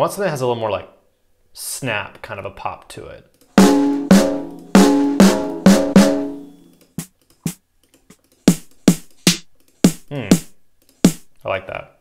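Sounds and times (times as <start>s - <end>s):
snare drum hits: 3.6s - 6.4s.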